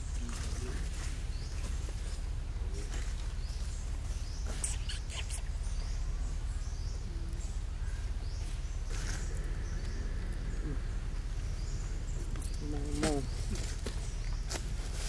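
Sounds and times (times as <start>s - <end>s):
birds chirping faintly: 0.0s - 15.0s
steady low rumble: 0.0s - 15.0s
shrill squeaks: 4.6s - 5.4s.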